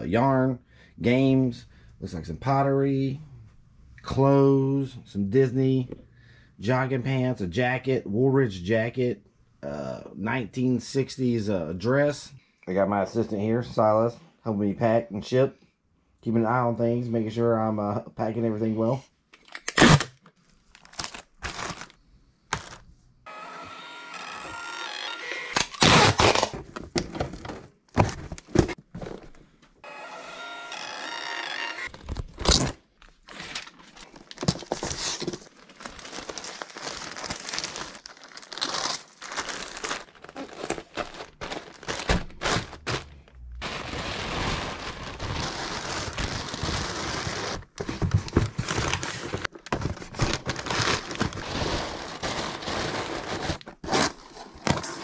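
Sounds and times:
plastic and paper crinkling: 20.4s - 22.8s, 31.9s - 55.0s
boxes knocking and thudding: 26.6s - 29.4s, 47.4s - 55.0s.

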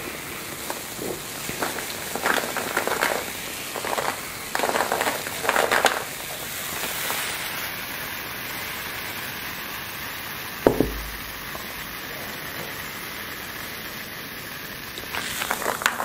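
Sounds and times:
carbonated drink fizzing: 0.0s - 16.0s
sharp knock: 10.7s - 11.6s.

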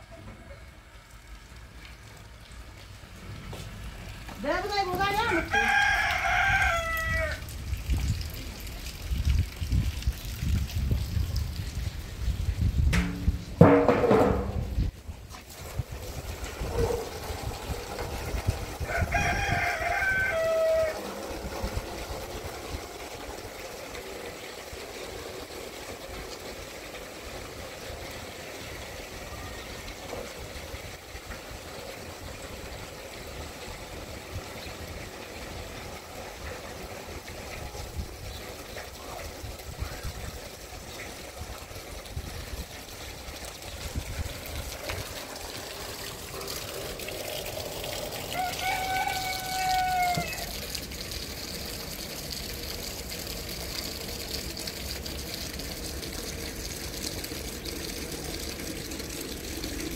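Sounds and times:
tap water splashing on ground: 1.5s - 16.6s, 41.0s - 59.9s
rooster crowing: 5.3s - 7.5s, 18.8s - 21.5s, 48.3s - 50.6s.

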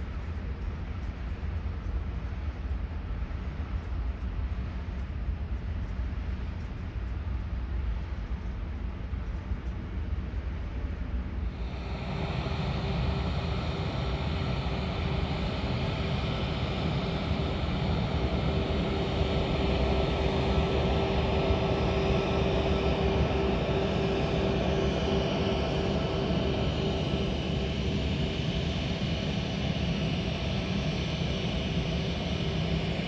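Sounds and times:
jet engines whining on runway: 11.4s - 33.0s.

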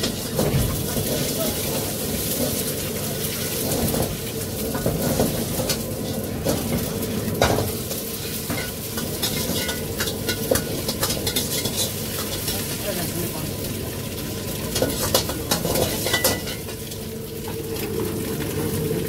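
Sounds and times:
rice sizzling in a wok: 0.0s - 19.0s
metal spatula scraping a pan: 8.1s - 12.8s.

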